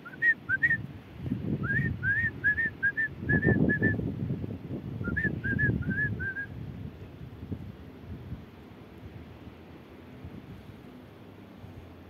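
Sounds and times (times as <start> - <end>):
person whistling chirps: 0.0 - 0.8, 1.6 - 4.0, 5.0 - 6.5.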